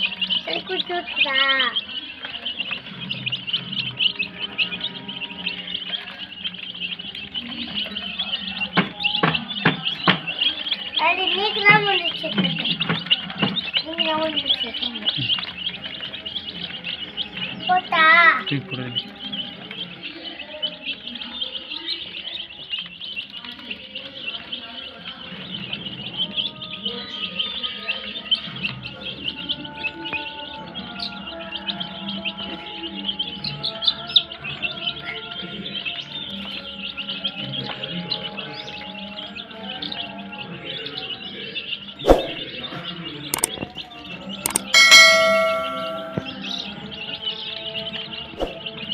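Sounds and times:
chicks peeping: 0:00.0 - 0:48.9
bell-like ding: 0:44.5 - 0:46.6.

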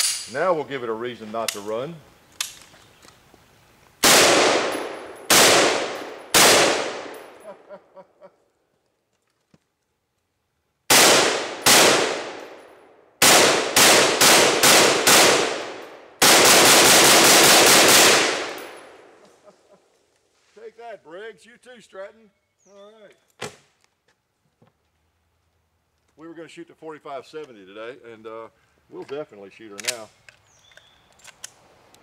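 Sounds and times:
rifle shots: 0:04.0 - 0:07.4, 0:10.9 - 0:19.1.

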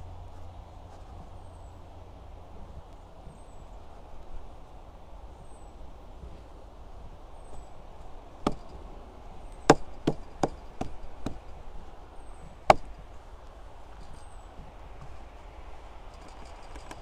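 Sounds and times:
sharp knocks: 0:08.4 - 0:08.8, 0:09.6 - 0:11.6, 0:12.4 - 0:13.1.

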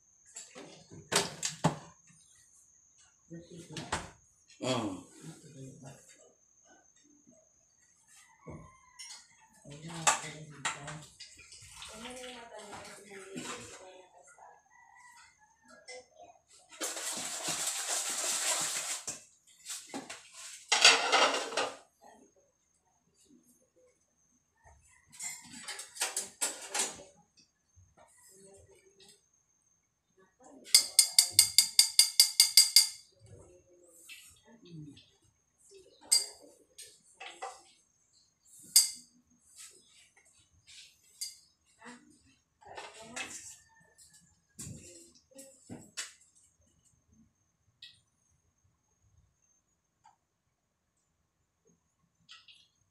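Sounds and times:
scrubbing and rinsing metal bowl: 0:11.2 - 0:13.9, 0:16.6 - 0:21.8
metal kitchenware clinking: 0:20.7 - 0:21.8, 0:30.7 - 0:33.1, 0:36.1 - 0:37.6, 0:38.6 - 0:39.1.

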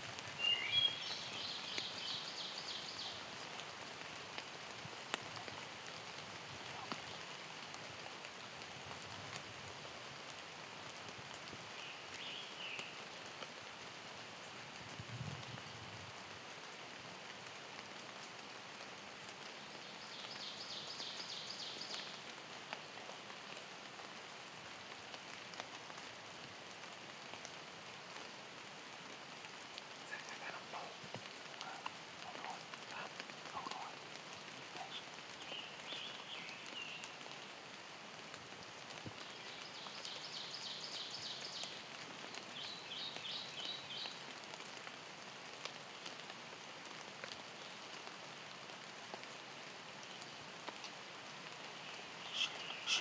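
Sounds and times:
steady rain: 0:00.0 - 0:53.0
lower bird calls: 0:30.0 - 0:37.2, 0:51.6 - 0:53.0
small bird trilling: 0:52.3 - 0:53.0.

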